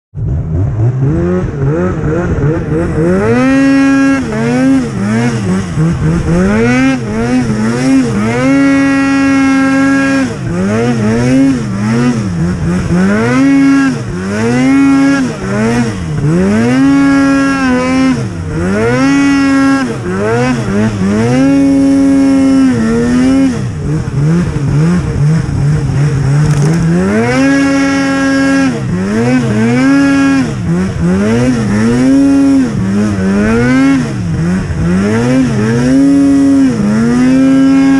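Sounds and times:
snowmobile engine revving: 0.2 - 37.9.

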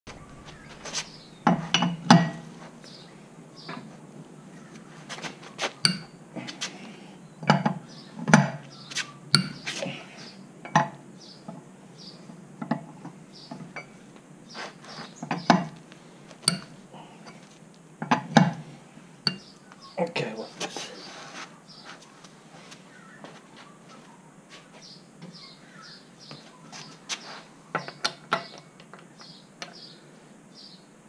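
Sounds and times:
wheel brace clinking on wheel nuts: 5.8 - 6.2, 16.4 - 18.6.

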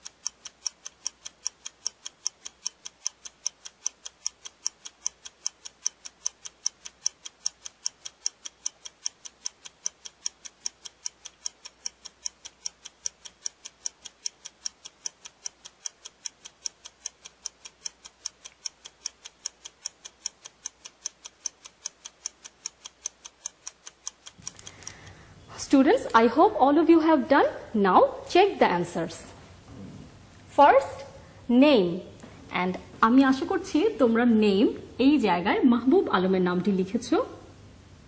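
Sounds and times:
fast even clock ticking: 0.0 - 25.2.

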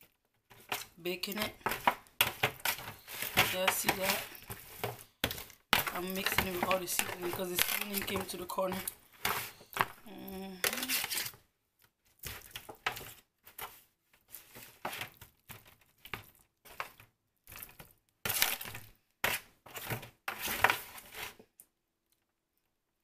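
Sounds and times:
aluminium foil crinkling: 0.1 - 18.9
hands squishing wet marinade: 11.8 - 19.5.

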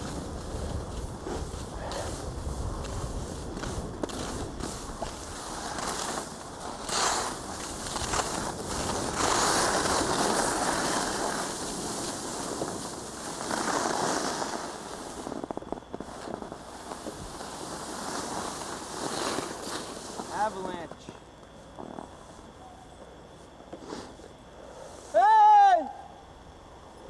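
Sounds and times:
wind on microphone: 0.0 - 17.6
skis sliding on hard snow: 0.0 - 21.2, 23.7 - 24.2.

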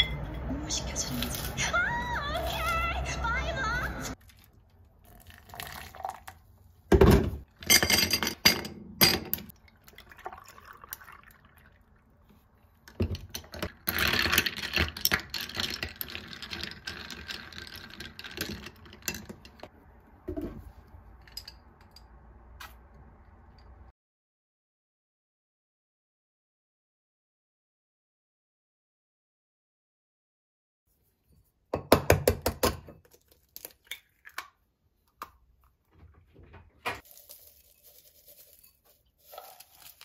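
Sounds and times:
ice clinking: 4.2 - 6.5, 7.6 - 12.1, 13.3 - 19.6, 37.0 - 40.0
liquid poured over ice: 4.2 - 6.5, 9.5 - 12.2, 37.0 - 40.0.

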